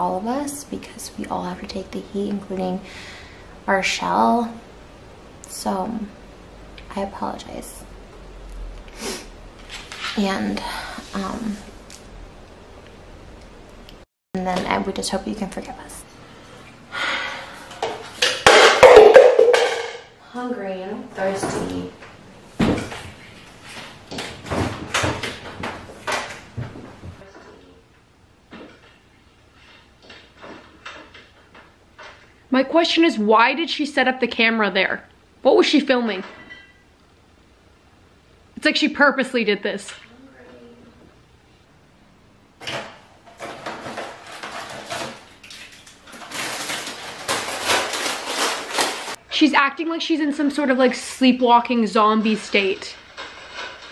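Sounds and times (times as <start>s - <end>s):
knocks and rattles of shelves: 17.9s - 20.1s, 22.6s - 23.2s, 23.9s - 27.3s, 42.6s - 45.4s
refrigerator door opening and closing: 24.1s - 26.8s
plastic packet rustling: 43.4s - 49.2s.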